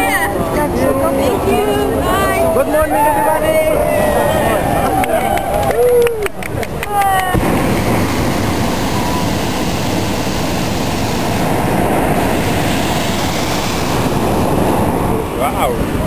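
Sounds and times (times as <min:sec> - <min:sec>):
propane burner blast: 0:07.2 - 0:16.0.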